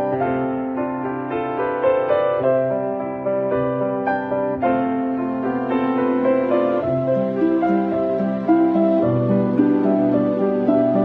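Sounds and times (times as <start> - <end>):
soft slow piano: 0.0 - 11.0.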